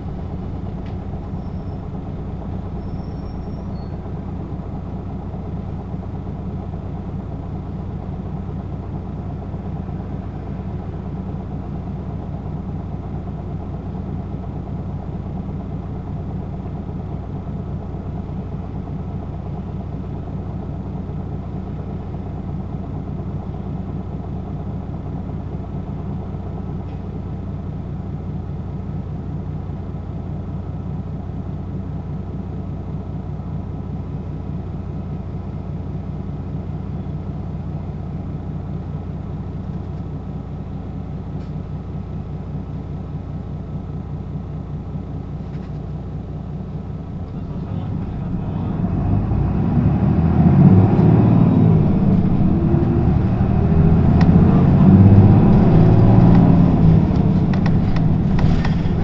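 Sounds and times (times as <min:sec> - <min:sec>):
bus engine revving: 0:00.0 - 0:04.5, 0:47.1 - 0:59.0
bus diesel engine idling: 0:00.0 - 0:59.0.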